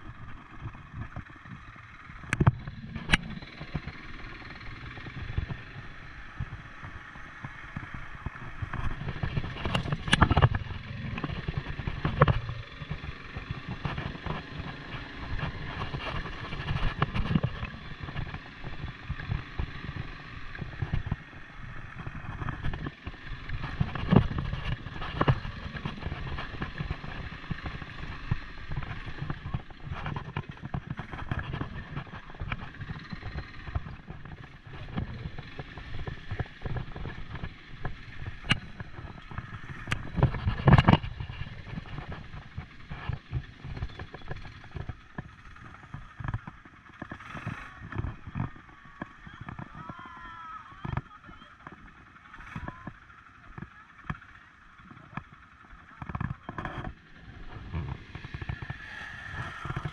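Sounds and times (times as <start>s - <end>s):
quad bike engine running: 0.0s - 59.9s
knocks and rattles: 2.2s - 50.0s.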